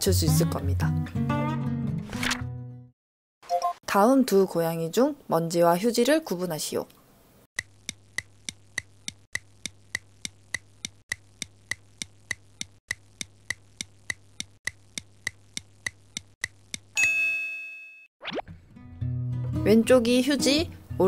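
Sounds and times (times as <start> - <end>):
clock ticking: 7.6 - 16.9
bright bell ding: 17.0 - 18.1.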